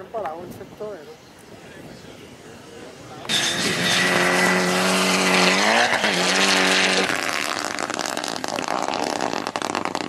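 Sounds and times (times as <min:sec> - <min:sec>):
crackling rush of car pulling away: 0:03.3 - 0:10.0
rally car engine revving: 0:03.3 - 0:10.0.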